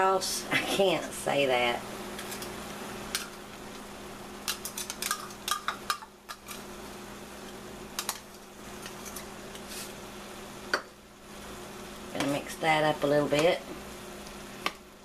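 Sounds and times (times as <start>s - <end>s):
kitchenware clinking: 4.5s - 6.6s.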